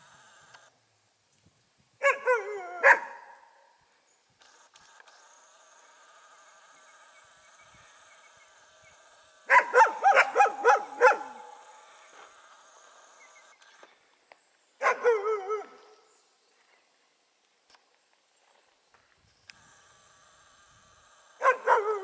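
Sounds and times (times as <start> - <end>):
dogs barking: 2.0 - 3.4, 9.5 - 11.6, 14.8 - 15.8, 21.4 - 22.0.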